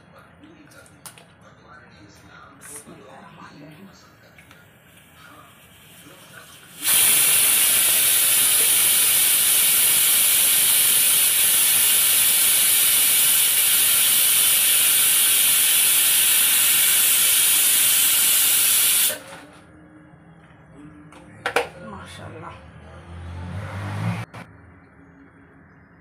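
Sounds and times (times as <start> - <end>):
pressure cooker hissing steam: 5.1 - 19.4.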